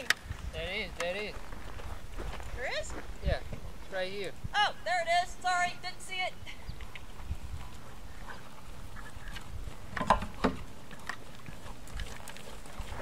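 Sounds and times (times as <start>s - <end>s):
wind rumble on microphone: 0.0s - 5.8s, 6.4s - 13.0s
soft hoofbeats on sand: 0.3s - 4.3s.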